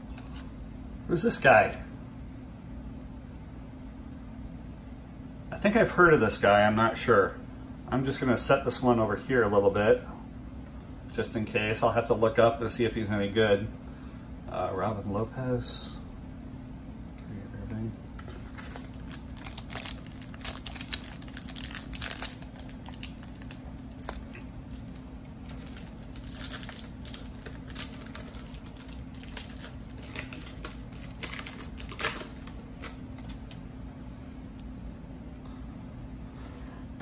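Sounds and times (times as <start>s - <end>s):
foil wrapper crinkling and tearing: 18.2s - 33.6s.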